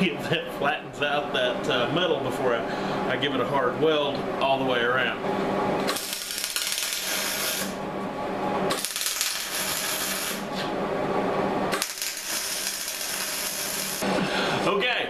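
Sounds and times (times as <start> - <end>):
welding arc crackling: 5.8 - 7.8, 8.7 - 10.5, 11.7 - 14.0.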